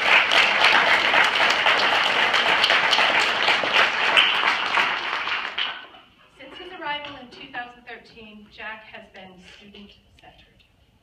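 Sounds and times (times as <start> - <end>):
sharp hand claps close by: 0.0 - 5.9
audience applauding: 0.0 - 6.1.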